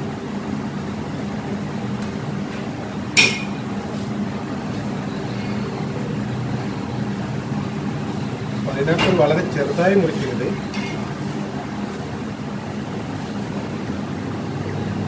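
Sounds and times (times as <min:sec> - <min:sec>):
steady mechanical hum: 0:00.0 - 0:15.0
clink against ceramic plate: 0:03.2 - 0:03.6.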